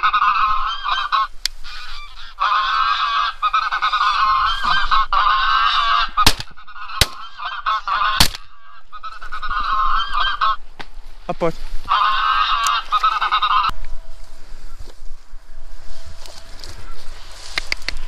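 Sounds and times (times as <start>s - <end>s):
geese honking: 0.0s - 10.8s, 11.8s - 14.9s
shotgun shots: 6.2s - 7.3s, 8.2s - 8.6s.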